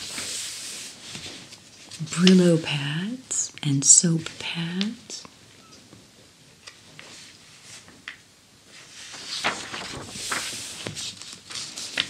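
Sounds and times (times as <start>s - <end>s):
paper rustling and crinkling: 0.0s - 2.4s, 8.7s - 12.0s.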